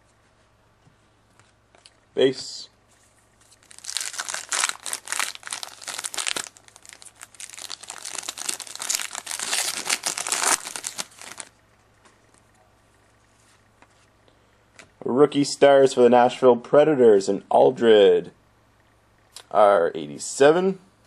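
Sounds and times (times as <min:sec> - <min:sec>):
foil wrapper crinkling: 0:03.4 - 0:11.5.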